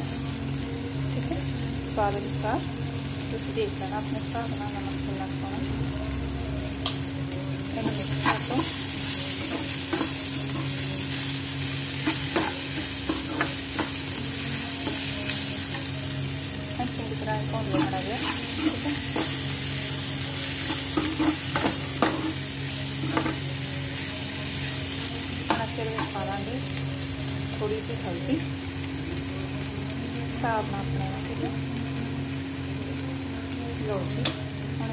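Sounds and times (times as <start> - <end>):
vegetables sizzling in oil: 0.0 - 34.9
spoon scraping pan: 7.8 - 10.9, 11.9 - 14.1, 17.6 - 19.6, 20.6 - 23.5.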